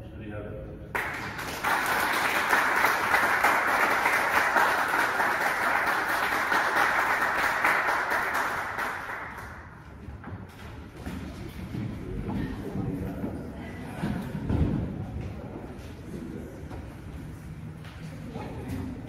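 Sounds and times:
people clapping: 0.9 - 10.3.

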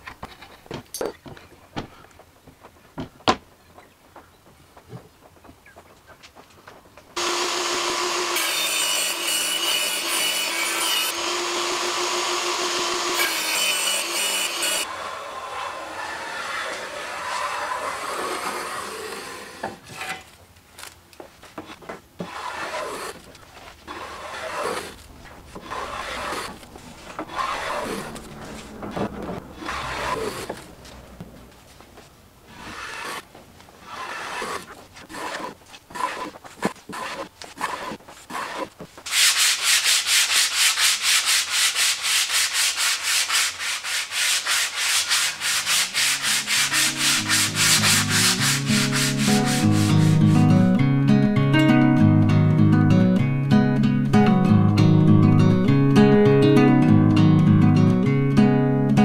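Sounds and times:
hand sanding wood: 22.2 - 28.2, 32.5 - 50.4
hand plane shaving wood: 22.2 - 28.7, 29.6 - 30.7, 32.5 - 50.4.

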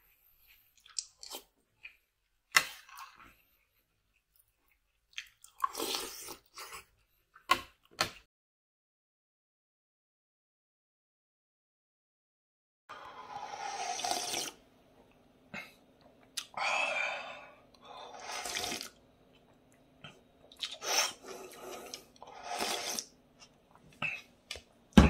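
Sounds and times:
slurping broth from a bowl: 13.0 - 14.6, 18.0 - 19.0, 20.6 - 23.2.

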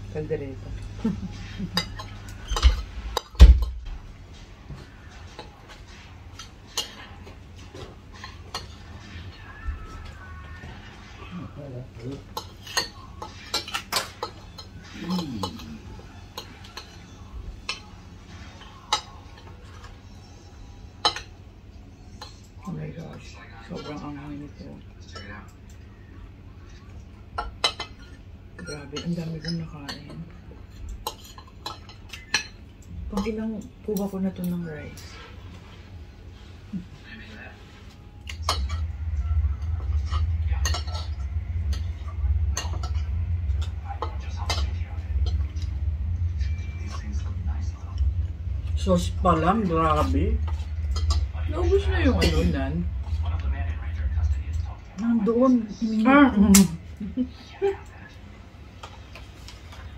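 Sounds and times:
steady low hum: 0.0 - 59.9
cutlery clinking against plates: 1.2 - 4.0, 5.0 - 9.2, 12.2 - 24.1, 26.7 - 35.2, 38.2 - 38.9, 40.0 - 45.7.

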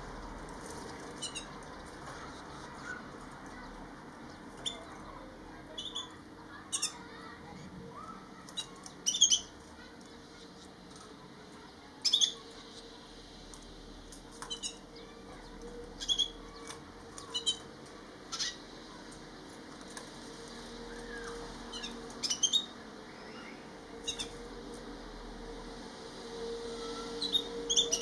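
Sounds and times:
finch high-pitched calls: 1.2 - 1.5, 17.2 - 17.6, 21.1 - 24.4, 26.9 - 28.0.

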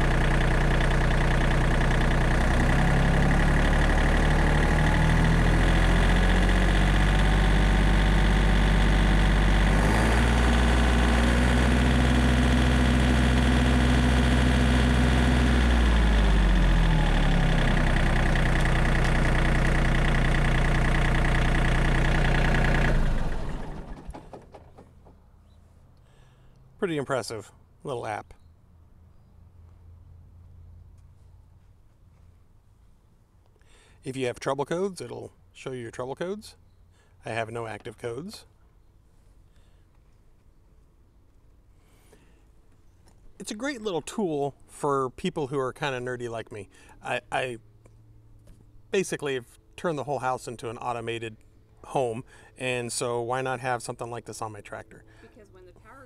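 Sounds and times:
tractor diesel engine running: 0.0 - 27.0, 41.8 - 56.0.

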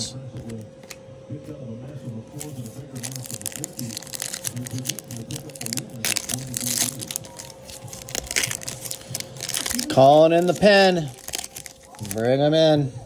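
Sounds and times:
foil wrapper crinkling and tearing: 2.3 - 12.7.

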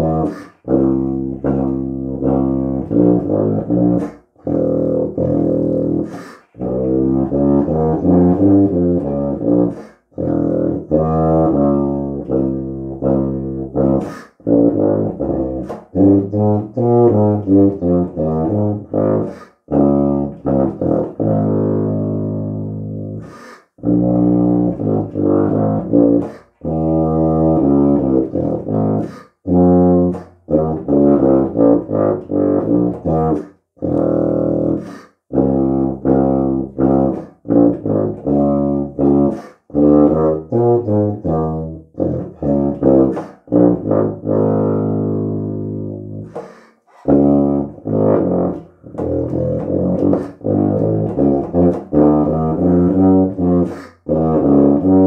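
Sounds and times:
tuba playing low notes: 0.0 - 55.0
player breathing: 6.0 - 6.6, 23.2 - 23.8, 29.0 - 29.4, 34.8 - 35.3, 46.3 - 47.1, 53.7 - 54.1.

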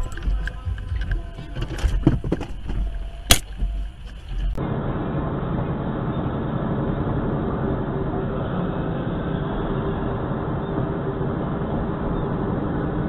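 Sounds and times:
engine and road noise in cab: 0.0 - 13.0
sharp click: 3.2 - 3.7.

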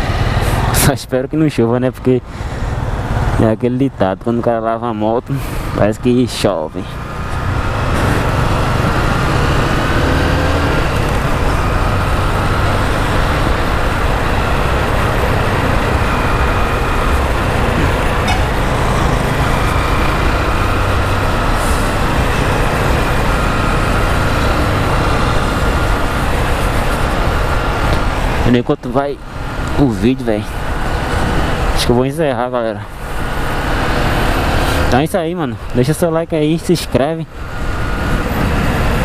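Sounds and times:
motorcycle engine running: 6.8 - 28.2.

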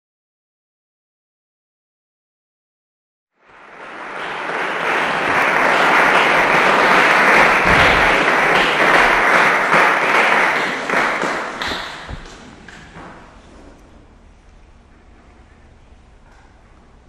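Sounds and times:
audience applauding: 3.4 - 13.0.

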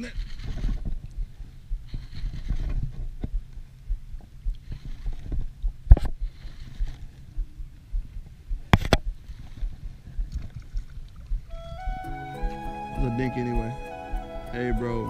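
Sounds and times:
water sloshing and lapping: 9.3 - 11.5.

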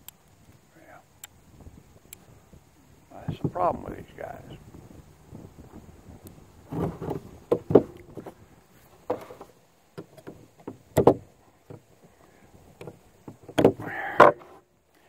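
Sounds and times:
metallic clicks and knocks: 9.0 - 11.9.

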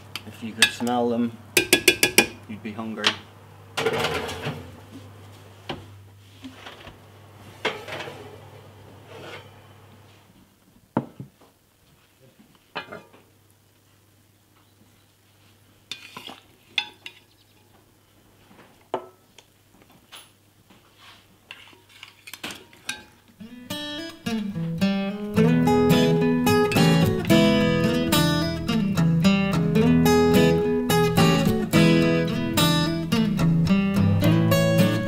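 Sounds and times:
metal tongs clinking on pot: 0.6 - 1.0, 1.6 - 2.4, 21.9 - 23.2.

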